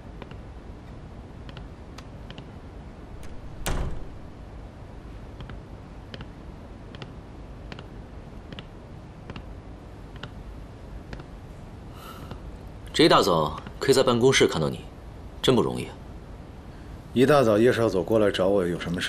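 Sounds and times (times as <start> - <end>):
low room hum: 0.0 - 19.0
door shutting with a thud: 3.2 - 4.4.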